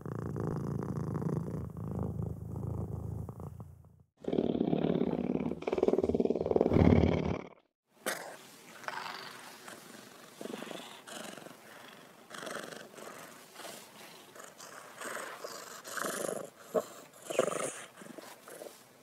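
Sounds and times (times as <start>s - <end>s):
cat purring: 0.0s - 7.4s, 8.2s - 18.8s.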